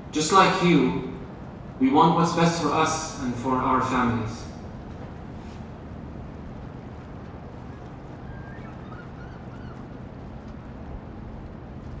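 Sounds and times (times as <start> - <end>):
low outdoor rumble: 0.0 - 12.0
high bird calls: 8.2 - 9.8.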